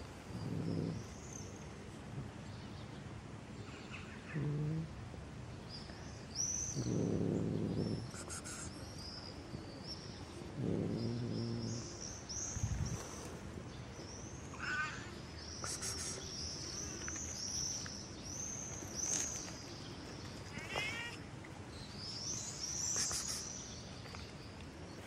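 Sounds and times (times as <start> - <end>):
cat meowing: 20.5 - 21.2.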